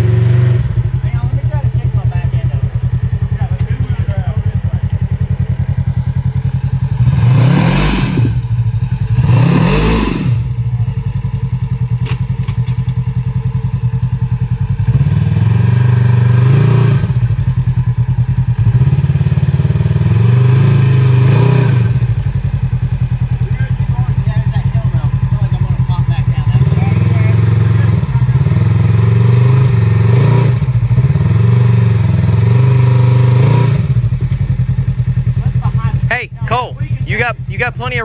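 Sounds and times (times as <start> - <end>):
off-road vehicle engine revving: 0.0 - 38.0.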